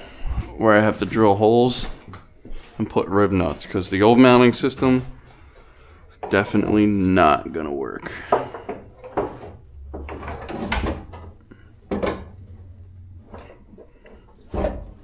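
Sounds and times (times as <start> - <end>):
plastic bumper cover knocking and scraping: 8.2 - 12.7.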